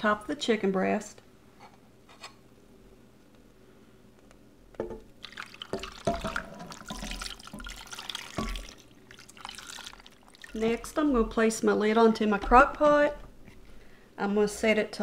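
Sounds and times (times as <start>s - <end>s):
gravy pouring and splashing: 5.1s - 11.4s.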